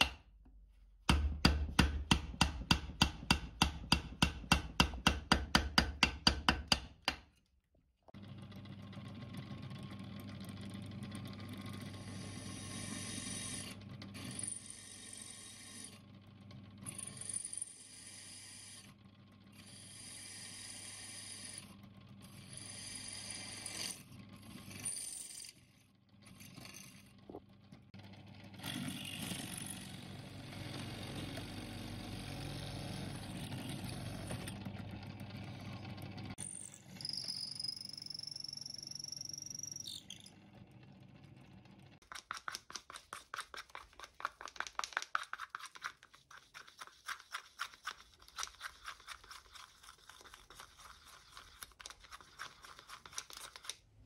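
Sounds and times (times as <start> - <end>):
drill press motor running: 28.0 - 36.4
drill bit squealing: 36.7 - 40.3.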